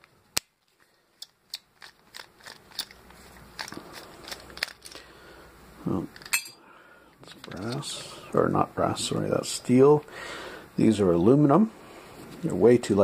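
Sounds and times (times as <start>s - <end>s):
screwdriver clicking and scraping: 1.2s - 5.0s.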